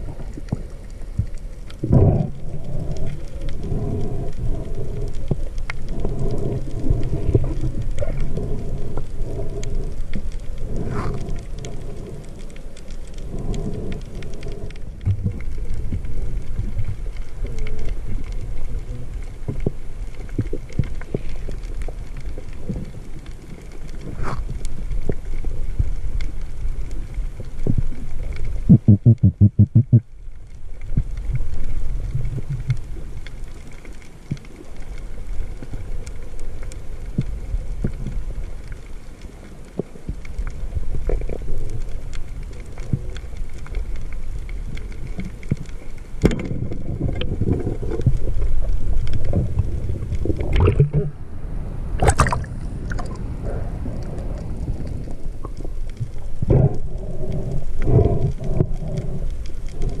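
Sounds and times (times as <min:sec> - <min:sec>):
muffled underwater sloshing: 0:00.0 - 1:00.0
water splashes: 0:44.0 - 0:56.7.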